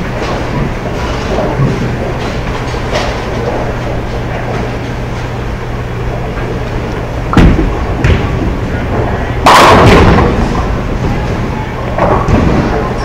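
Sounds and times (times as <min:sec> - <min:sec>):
bowling balls rolling on lanes: 0:00.0 - 0:13.0
low hum: 0:00.0 - 0:13.0.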